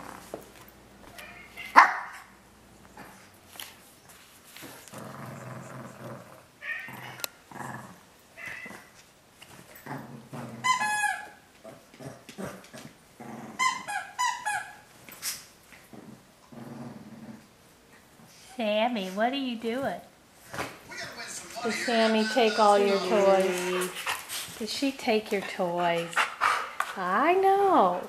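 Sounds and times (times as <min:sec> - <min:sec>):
dog yipping: 0:01.2 - 0:02.3, 0:10.6 - 0:11.4, 0:13.6 - 0:14.9
small dog growling: 0:04.7 - 0:08.9, 0:09.8 - 0:10.8, 0:11.6 - 0:13.9, 0:15.9 - 0:17.5.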